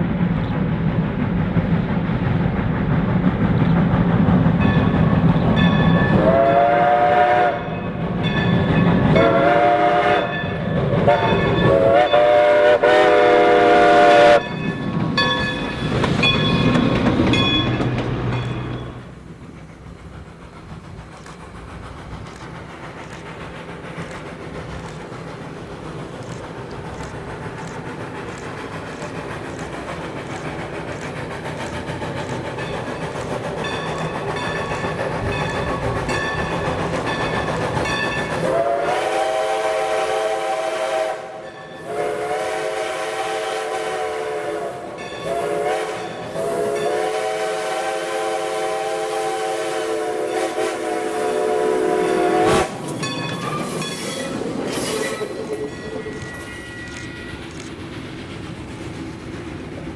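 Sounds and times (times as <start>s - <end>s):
steam locomotive exhaust beats: 0.0s - 59.9s
train wheel clatter: 0.0s - 59.9s
steam whistle blasts: 6.2s - 7.7s, 9.2s - 10.4s, 11.0s - 14.4s, 38.4s - 52.8s.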